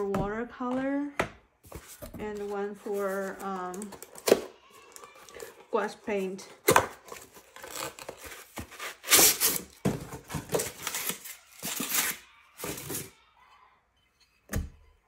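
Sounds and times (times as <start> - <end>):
packaging rustling and scraping: 1.6 - 13.1.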